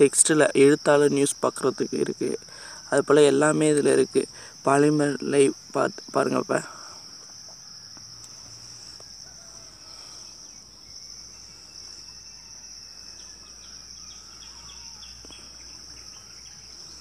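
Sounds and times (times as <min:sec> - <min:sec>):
crickets trilling: 0:00.0 - 0:17.0.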